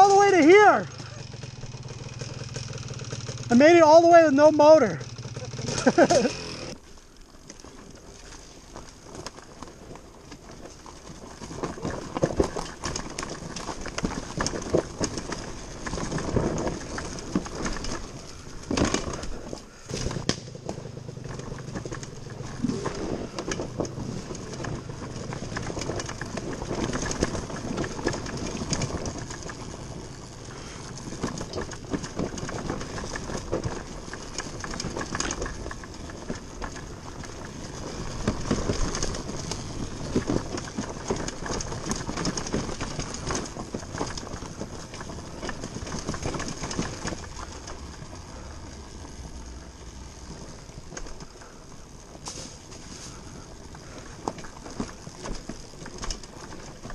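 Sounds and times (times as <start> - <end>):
motorbike rattling and knocking: 0.0 - 6.8, 10.5 - 48.5
tyres crunching over dirt and rocks: 5.6 - 56.9.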